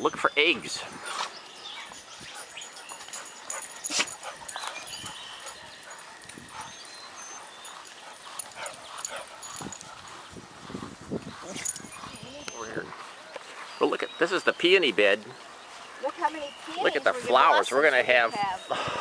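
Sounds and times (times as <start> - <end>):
dogs making short vocal sounds: 1.0 - 10.2.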